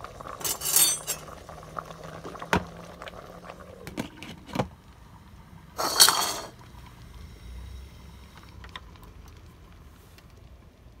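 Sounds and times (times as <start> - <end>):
glass lid clattering on pot: 0.4 - 1.3, 5.8 - 6.5.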